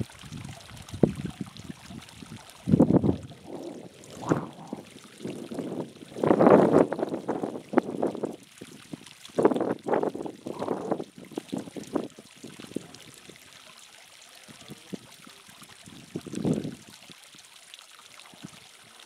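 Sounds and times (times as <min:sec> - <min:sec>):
wind buffeting microphone: 0:00.0 - 0:13.0, 0:16.1 - 0:16.8
water trickling into pool: 0:00.0 - 0:19.0.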